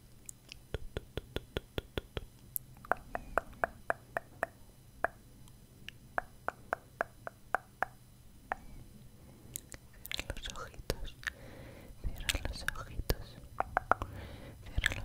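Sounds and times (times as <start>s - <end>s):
wet mouth clicks and lip pops: 0.2s - 5.2s, 9.6s - 11.4s, 12.2s - 14.1s, 14.7s - 15.0s.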